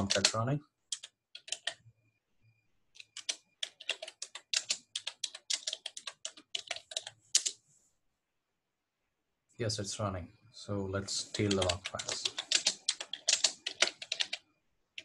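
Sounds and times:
typing on computer keyboard: 0.0 - 1.8, 2.9 - 7.6, 11.2 - 15.0.

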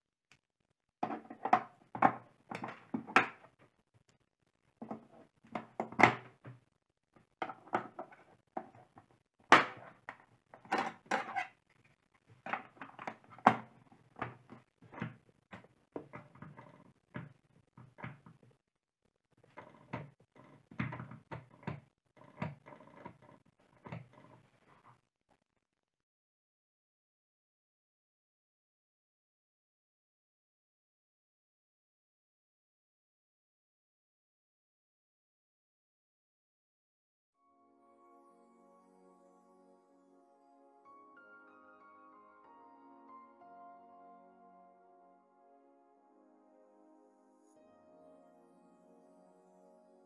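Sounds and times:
plastic clicks and knocks: 1.0 - 3.6, 4.8 - 6.6, 12.4 - 18.5.

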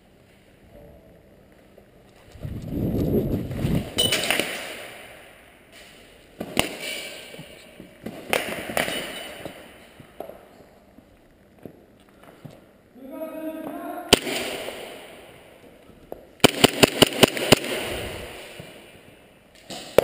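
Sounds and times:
low rumble of movement: 0.7 - 4.0
airsoft gunshot cracks: 14.1 - 15.0.

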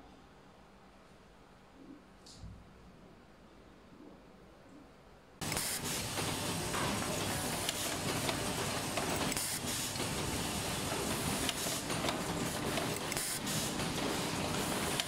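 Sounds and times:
compressed air hissing bursts: 5.4 - 6.2, 13.0 - 13.8
machine clatter: 5.4 - 15.0.

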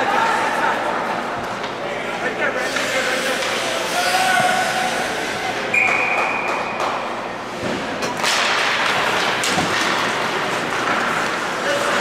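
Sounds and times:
crowd noise: 0.0 - 12.0
sticks and skates clattering on ice: 2.6 - 5.0, 5.8 - 12.0.

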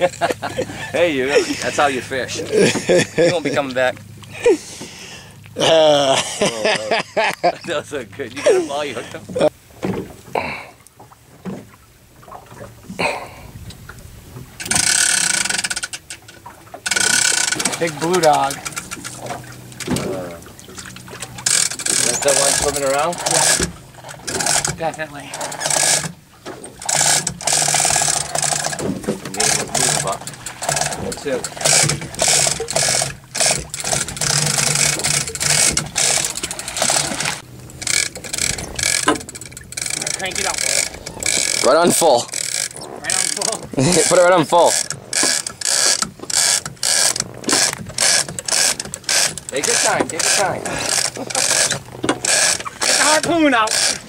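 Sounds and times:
fishing reel drag clicking: 14.6 - 16.2, 16.8 - 19.9, 21.4 - 26.1, 26.8 - 54.0.

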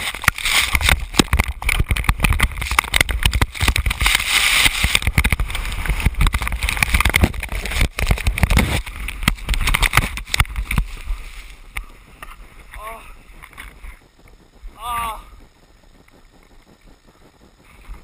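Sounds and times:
knocks and thuds on snow: 0.0 - 14.0
wind on microphone: 0.0 - 18.0
spraying snow hiss: 3.5 - 6.2, 10.3 - 18.0.

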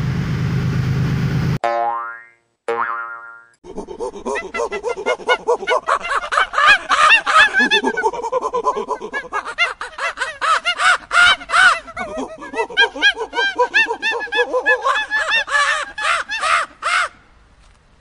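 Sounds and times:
monkey-like chattering: 3.6 - 16.7.

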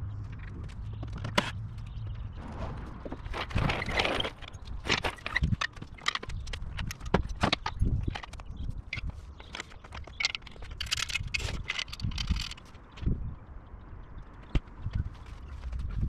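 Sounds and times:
metal clicks and clanks: 3.5 - 12.8.

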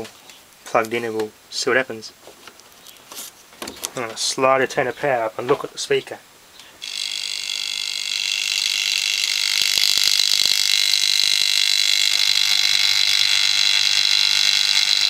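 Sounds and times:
vacuum cleaner motor whine: 6.8 - 15.0.

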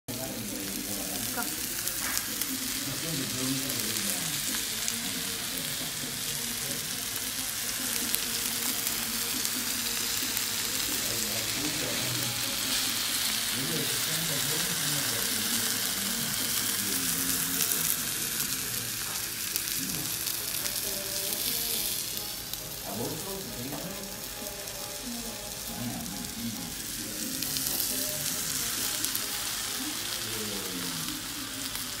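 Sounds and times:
steak sizzling on hot plate: 0.1 - 32.0.

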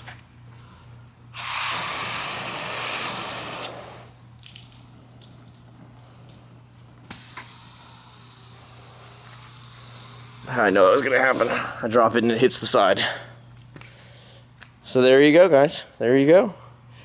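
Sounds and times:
hose spraying water hiss: 1.4 - 4.2, 7.1 - 11.6.

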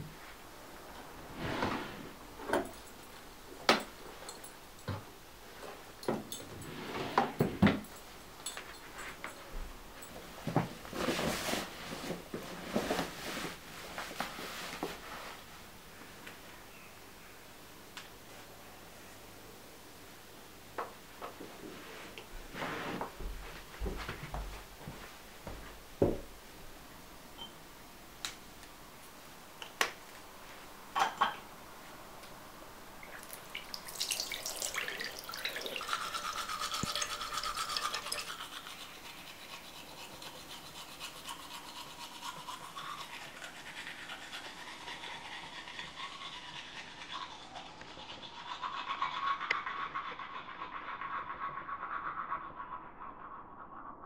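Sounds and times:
toothbrush scrubbing teeth: 33.2 - 53.4.

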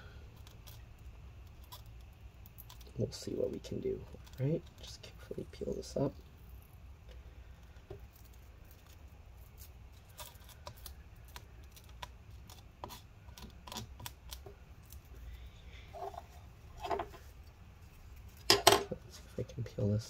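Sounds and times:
low steady hum: 0.0 - 20.0
adhesive peeling clicks and crackles: 0.3 - 3.0, 3.6 - 5.0, 7.6 - 15.1.

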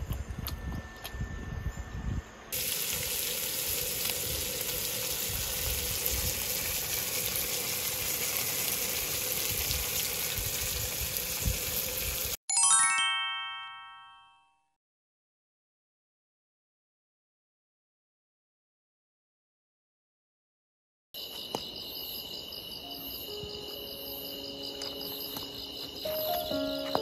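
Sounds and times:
meat sizzling on a grill: 2.5 - 12.4
bell-like chime: 12.5 - 14.7.

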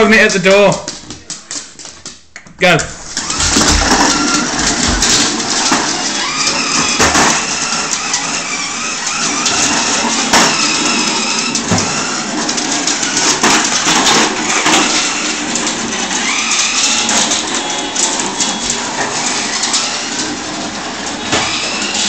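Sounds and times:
knocks and clatter on wooden floor: 0.8 - 7.5
toy car electric motor whirring: 3.2 - 22.0.

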